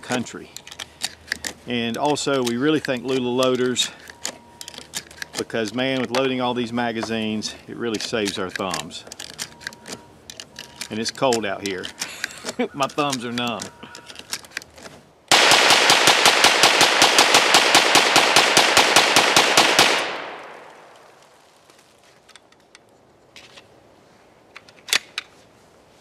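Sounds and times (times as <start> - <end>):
metallic magazine clicks: 0.1 - 6.4, 7.0 - 16.8
rounds pressed into magazine: 0.1 - 6.4, 7.0 - 21.3
rapid gunshots echoing: 15.3 - 20.9.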